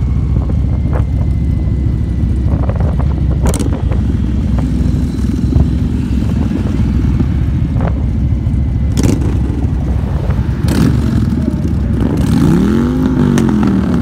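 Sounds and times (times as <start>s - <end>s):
motorcycle engine rumble: 0.0s - 14.0s
wind noise on microphone: 0.0s - 14.0s.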